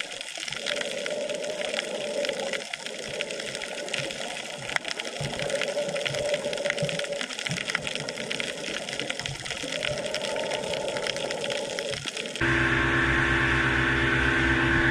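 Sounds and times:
underwater rushing hiss: 0:00.4 - 0:12.4
loud steady hum: 0:12.4 - 0:14.9.

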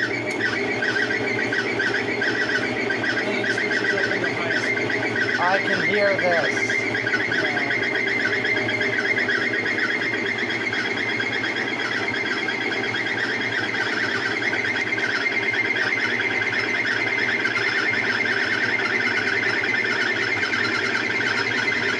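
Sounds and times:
washer mechanical hum: 0:00.0 - 0:21.9.

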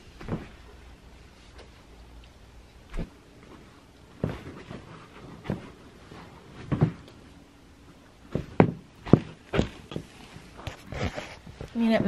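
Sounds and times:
boots thumping on floor: 0:00.2 - 0:00.6, 0:06.5 - 0:07.1, 0:08.2 - 0:10.2.

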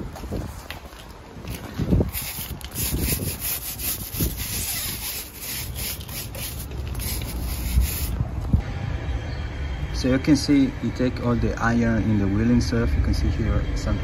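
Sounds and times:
brush scrubbing car wheel: 0:02.1 - 0:08.2.

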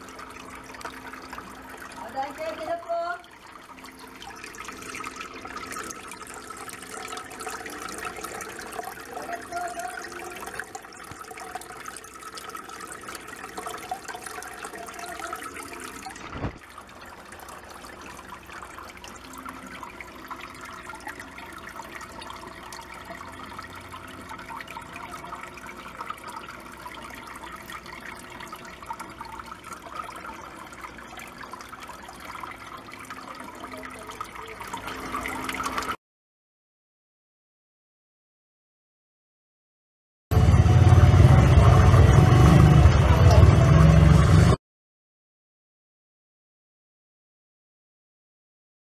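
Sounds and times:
water splashing into tank: 0:00.0 - 0:36.0.

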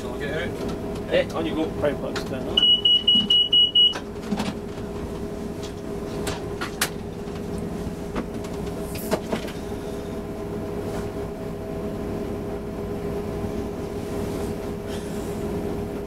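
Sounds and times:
locomotive diesel engine drone: 0:00.0 - 0:16.0.

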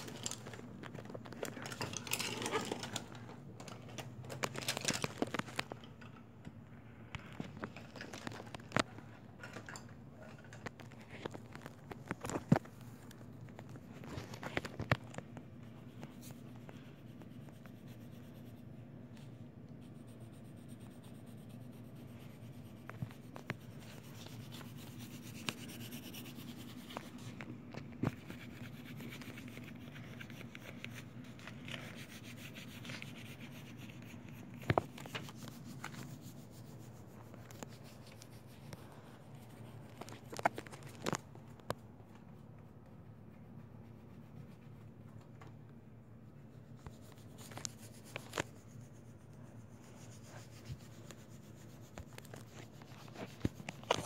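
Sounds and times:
steady low hum: 0:00.0 - 0:54.0
pencil scratching on paper: 0:15.6 - 0:41.2, 0:42.8 - 0:45.2, 0:46.4 - 0:54.0.

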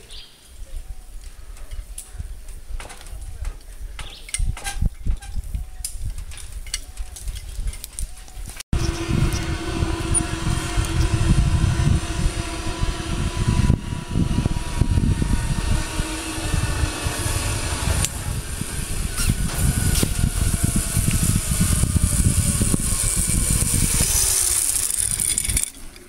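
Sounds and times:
wind rumble on microphone: 0:00.5 - 0:26.0
zip line pulleys whining: 0:08.7 - 0:26.0.

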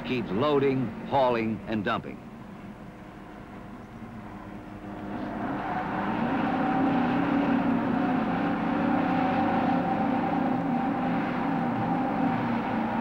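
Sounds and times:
wheel loader diesel engine: 0:04.2 - 0:13.0.

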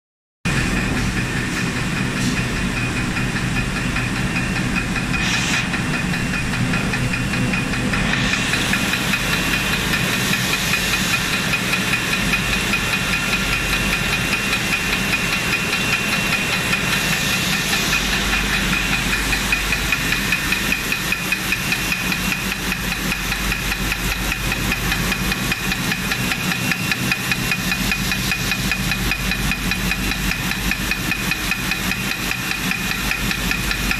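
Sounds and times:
low hum: 0:00.5 - 0:10.8
high whine: 0:00.5 - 0:33.9
machinery clatter: 0:00.5 - 0:33.9.

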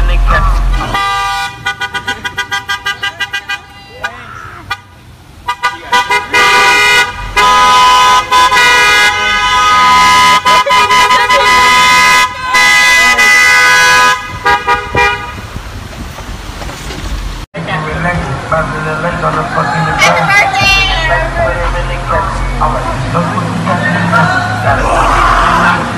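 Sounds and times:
car horns honking: 0:00.0 - 0:16.6.

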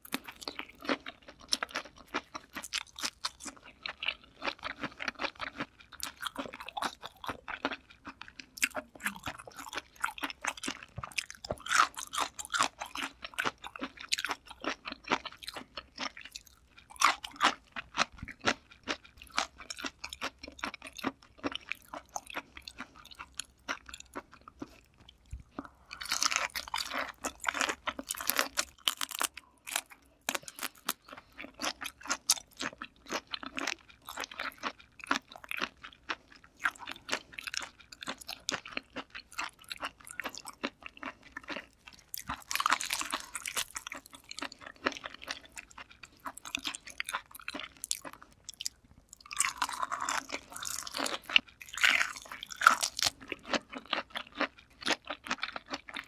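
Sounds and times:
wet crunchy chewing: 0:00.0 - 0:56.0.

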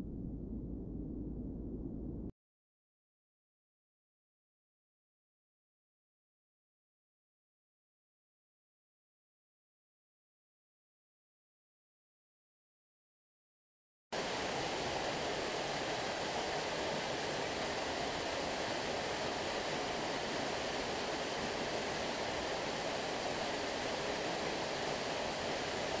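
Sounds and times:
waterfall rushing: 0:14.2 - 0:26.0.

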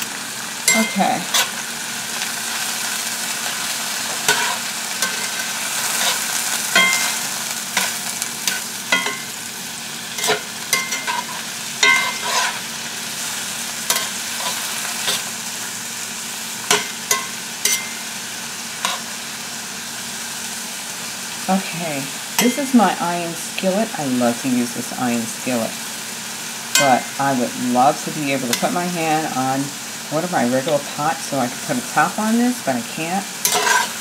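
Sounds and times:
mushrooms sizzling in a pan: 0:00.0 - 0:34.0
metal spatula scraping an iron pan: 0:00.7 - 0:01.6, 0:04.1 - 0:07.2, 0:10.1 - 0:12.6, 0:13.9 - 0:15.2, 0:16.7 - 0:18.0, 0:18.8 - 0:19.0, 0:33.4 - 0:34.0.

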